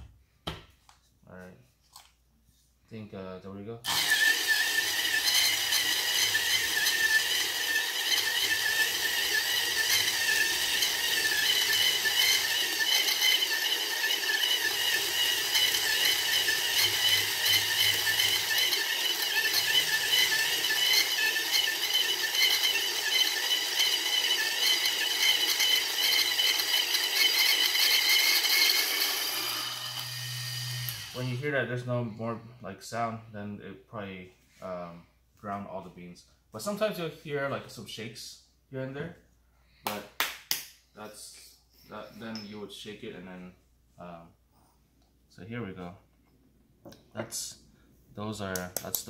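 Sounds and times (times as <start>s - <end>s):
coffee beans grinding: 3.9s - 31.4s
electric motor whining: 3.9s - 31.4s.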